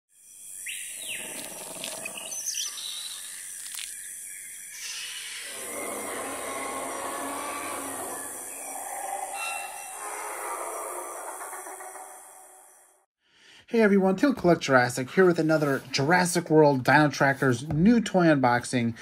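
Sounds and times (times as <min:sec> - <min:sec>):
bird calls and chirps: 0:00.2 - 0:12.9.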